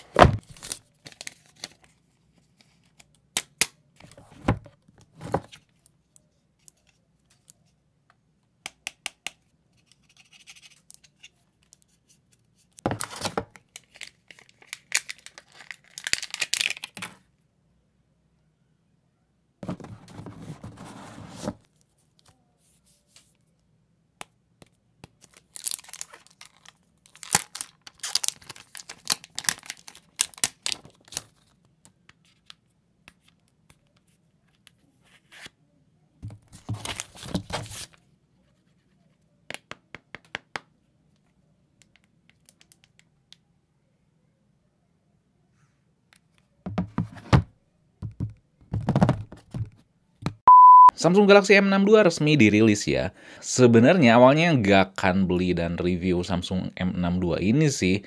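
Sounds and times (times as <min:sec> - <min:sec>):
plastic wrap crinkling: 0:13.0 - 0:17.1, 0:25.2 - 0:31.6
cardboard packaging shifting: 0:25.5 - 0:31.3.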